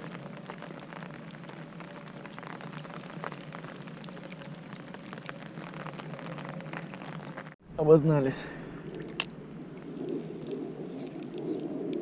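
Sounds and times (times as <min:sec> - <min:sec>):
rain falling onto a lake: 0:00.0 - 0:07.6.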